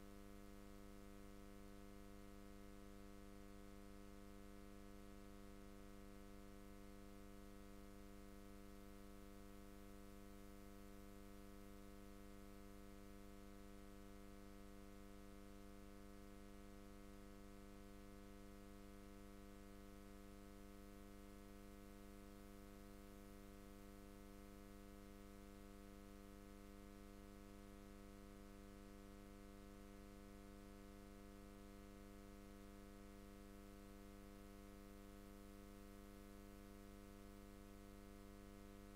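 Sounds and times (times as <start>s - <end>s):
faint electrical hum: 0.0s - 29.0s.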